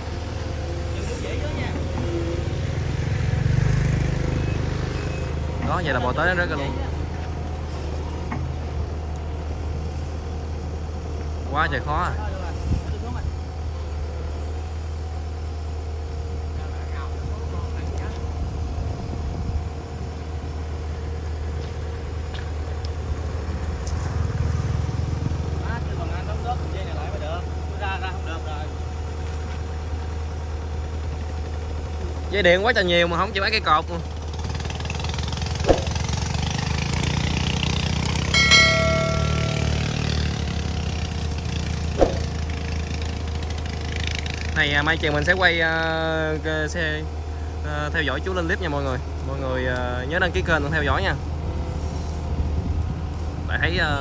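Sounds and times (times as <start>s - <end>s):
excavator diesel engine running: 0.0s - 54.0s
sharp knocks: 35.6s - 36.0s, 42.0s - 42.4s
ringing metallic clang: 38.2s - 40.7s.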